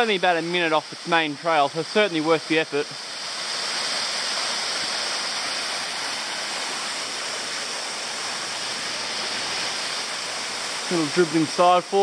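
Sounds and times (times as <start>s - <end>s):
water cascading over rock ledges: 0.0s - 12.0s.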